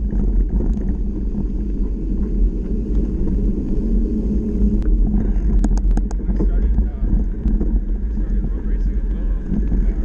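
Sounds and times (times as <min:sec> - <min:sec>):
gravel ticks: 0:00.0 - 0:10.0
tyres rolling on dirt: 0:00.0 - 0:10.0
wind buffeting microphone: 0:00.0 - 0:10.0.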